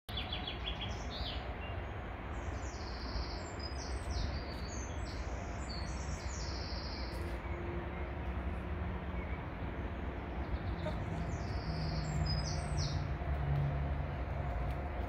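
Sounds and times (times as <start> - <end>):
low outdoor rumble: 0.1 - 15.0
songbirds singing: 0.1 - 15.0.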